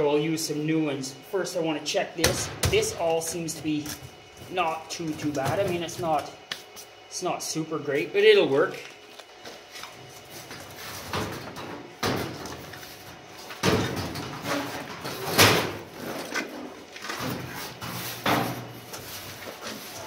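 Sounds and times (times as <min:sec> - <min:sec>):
sheet metal scraping and clunking: 0:13.6 - 0:20.0.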